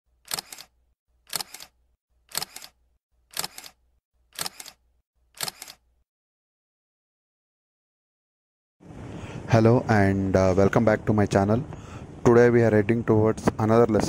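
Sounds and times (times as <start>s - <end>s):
camera shutter double click: 0.2s - 0.7s, 1.3s - 3.8s, 4.4s - 4.8s, 5.4s - 5.8s.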